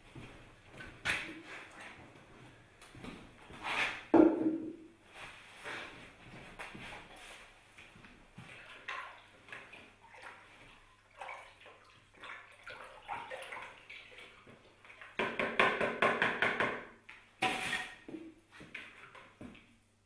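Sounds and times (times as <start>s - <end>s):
bucket knocking: 4.2s - 4.8s
water sloshing in a bucket: 6.8s - 15.5s.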